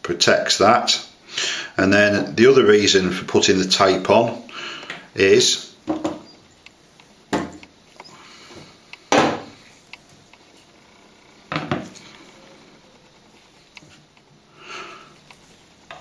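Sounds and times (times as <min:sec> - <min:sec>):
metal cylinder and board knocking: 0:05.9 - 0:06.3, 0:07.3 - 0:07.6.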